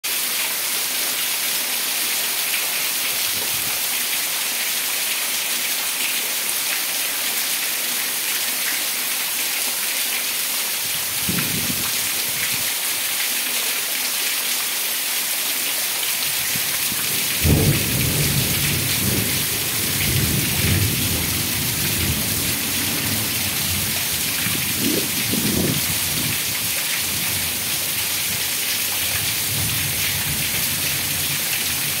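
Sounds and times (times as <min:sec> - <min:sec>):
heavy rain falling: 0:00.1 - 0:32.0
water pouring off roof edge: 0:10.9 - 0:32.0
thunder rumbling: 0:17.0 - 0:26.4.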